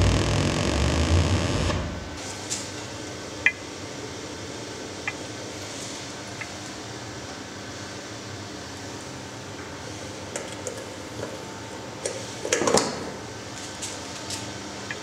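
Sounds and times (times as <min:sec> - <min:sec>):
loud crackle: 0:00.0 - 0:02.2.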